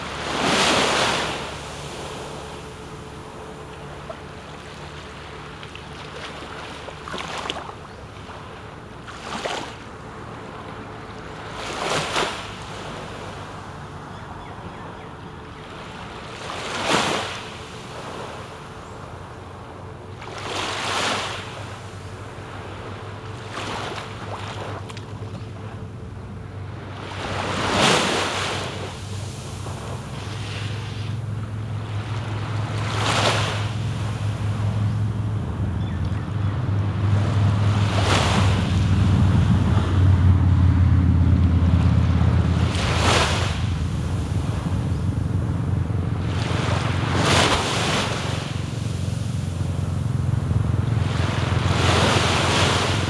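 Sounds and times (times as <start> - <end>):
steady low hum: 0.0 - 11.8, 28.2 - 53.0
small waves washing onto sand: 0.0 - 13.8, 15.7 - 18.8, 20.1 - 25.8, 26.6 - 35.6, 36.9 - 53.0.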